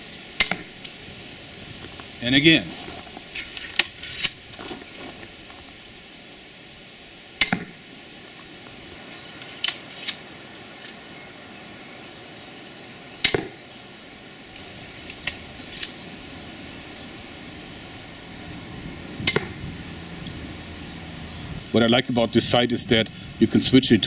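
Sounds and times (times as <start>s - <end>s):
crossbow firing crack: 0.4s - 1.0s, 7.4s - 7.8s, 13.2s - 13.6s, 15.0s - 16.0s, 19.2s - 19.6s
crossbow cocking clicks: 15.0s - 16.0s.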